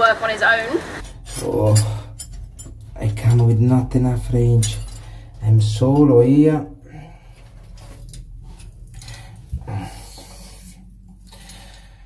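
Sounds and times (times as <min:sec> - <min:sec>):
man breathing hard: 0:06.8 - 0:07.7, 0:09.0 - 0:12.0.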